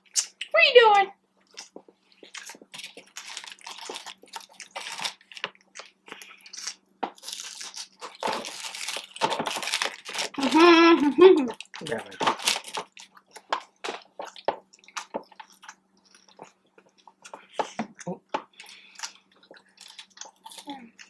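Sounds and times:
chewing and crunching food: 1.4s - 21.0s
paper wrapper crinkling: 1.5s - 14.2s.

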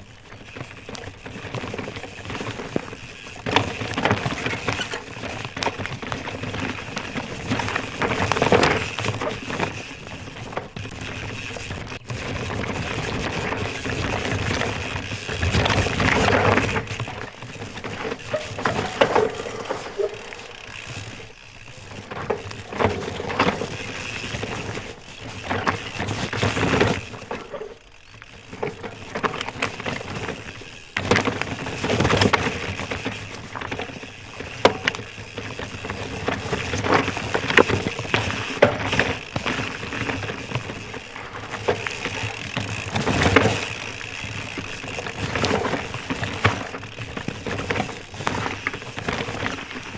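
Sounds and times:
tyres crunching over dirt and rocks: 0.0s - 49.9s
bike clattering knocks: 13.4s - 49.9s.

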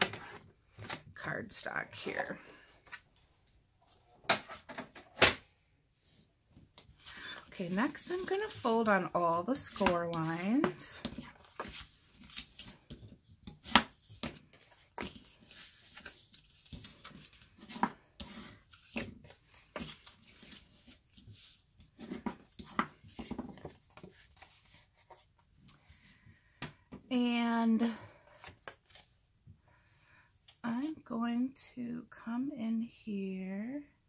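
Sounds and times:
cardstock crackling being folded: 7.4s - 21.6s.

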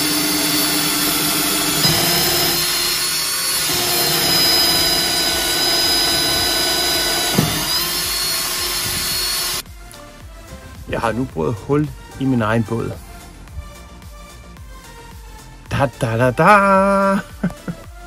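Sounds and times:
power drill boring fiberglass: 0.0s - 9.6s.

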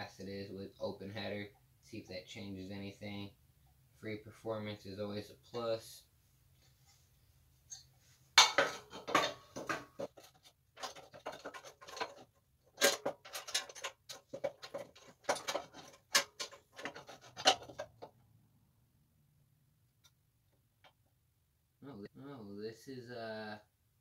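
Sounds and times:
metallic clicking and rattling: 8.5s - 18.1s.

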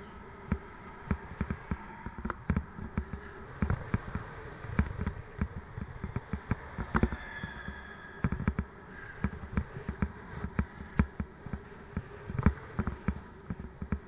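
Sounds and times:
faint steady hum: 0.0s - 14.0s
bike knocks and rattles: 0.5s - 7.3s.

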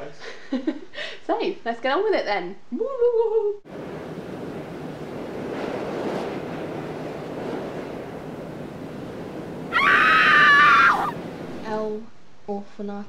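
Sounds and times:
wind-like rushing noise: 3.7s - 12.1s
loud high-pitched scream: 9.7s - 11.2s.

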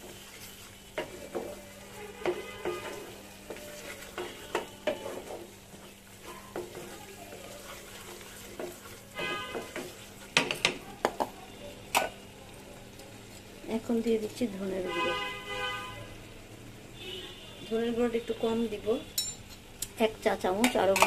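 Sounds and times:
spatula scraping a pan: 0.0s - 10.8s
low sizzle of frying paste: 0.0s - 21.0s.

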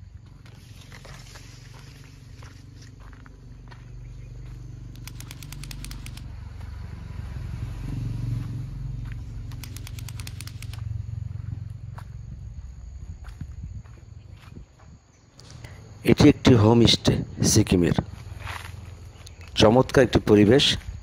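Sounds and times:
low rumble: 0.0s - 14.6s
rapid even clicking: 4.9s - 6.3s, 9.5s - 10.8s.

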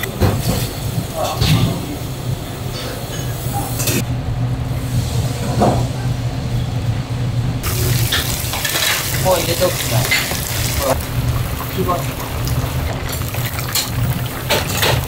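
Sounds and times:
water running into sink: 7.6s - 15.0s
steady low hum: 10.1s - 15.0s.

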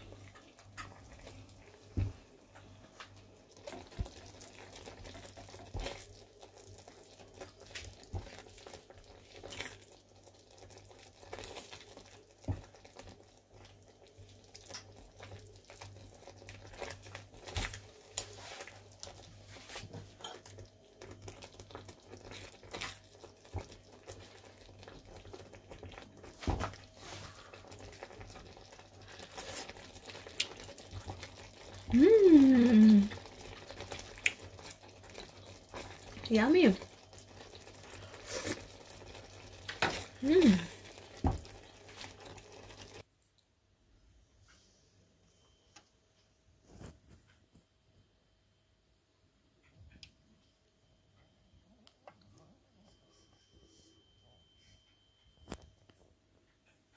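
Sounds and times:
low steady hum: 42.9s - 56.9s.

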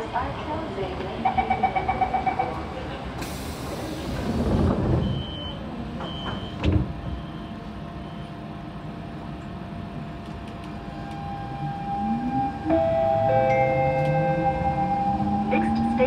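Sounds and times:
train hum: 0.0s - 16.0s
train doors shutting with a knock: 3.2s - 7.3s
door warning beeps: 5.0s - 8.3s.

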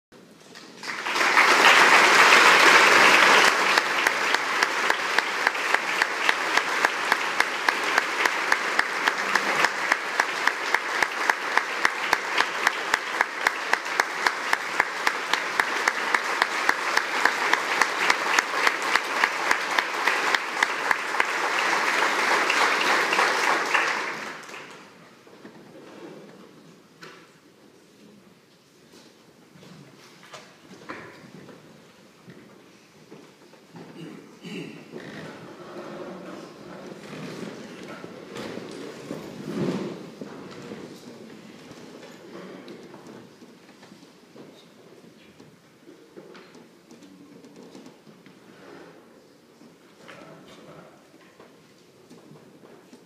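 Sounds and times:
audience applauding: 0.6s - 25.0s
steady sharp claps: 0.6s - 25.0s.

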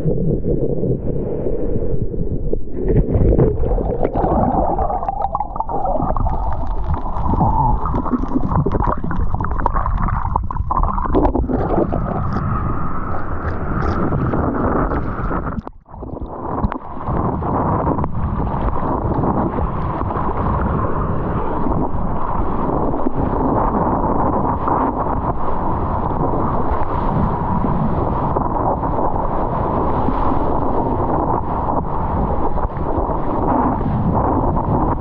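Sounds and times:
muffled churning water underwater: 0.0s - 35.0s
wind on microphone: 0.0s - 35.0s
splashing water: 2.8s - 17.2s.

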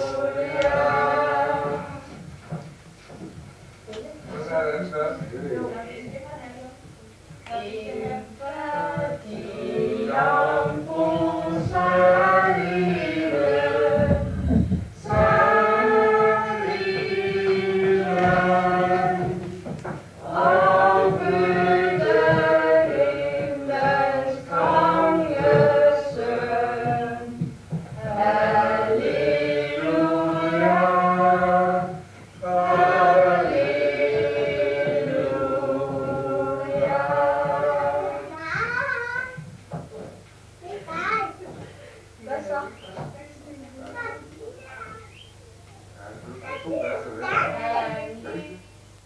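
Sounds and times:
group singing a carol: 0.0s - 2.6s, 7.4s - 38.5s, 47.0s - 49.0s.

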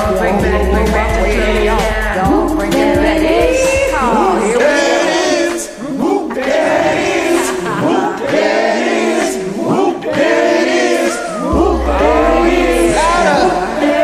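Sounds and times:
deep bass: 0.0s - 5.0s, 11.5s - 14.0s
group singing: 0.0s - 14.0s
karaoke backing track: 0.0s - 14.0s.

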